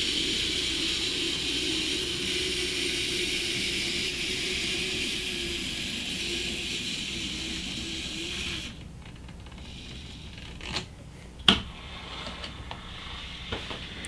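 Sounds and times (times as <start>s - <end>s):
model train running on track: 0.0s - 8.8s.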